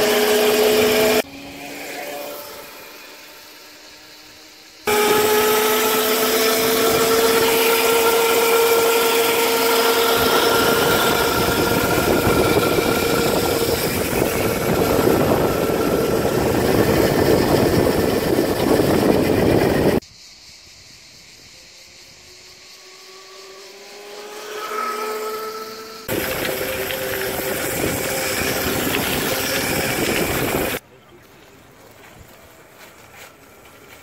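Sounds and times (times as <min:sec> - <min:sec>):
electric motor and chain whining: 0:00.0 - 0:20.0, 0:21.0 - 0:30.8
rushing wind: 0:06.7 - 0:22.8, 0:26.0 - 0:30.8
tyre noise on asphalt: 0:24.4 - 0:34.0.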